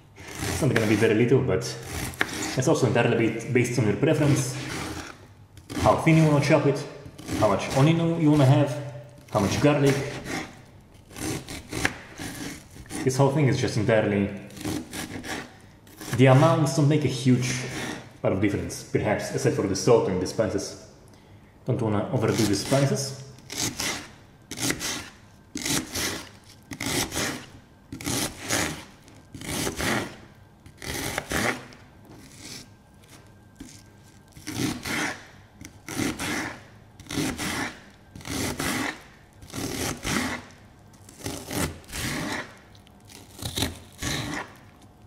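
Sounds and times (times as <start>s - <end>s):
knife chopping onion on board: 0.2s - 1.1s, 1.8s - 2.6s, 7.2s - 10.6s, 11.2s - 13.1s, 14.6s - 16.2s, 23.5s - 31.8s, 34.4s - 40.4s.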